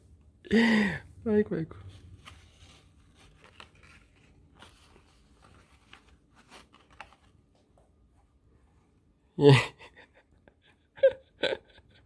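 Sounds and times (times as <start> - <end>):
cloth rustling: 1.9 - 7.7
plastic mask handled: 1.9 - 8.2.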